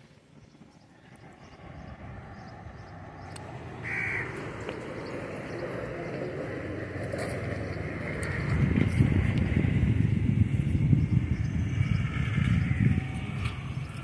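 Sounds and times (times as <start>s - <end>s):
crow cawing: 3.8s - 4.4s.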